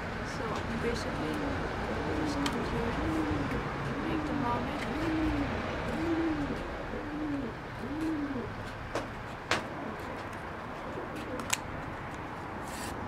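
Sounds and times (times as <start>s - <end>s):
pigeon cooing: 0.9s - 8.6s, 9.8s - 10.2s, 10.8s - 11.6s.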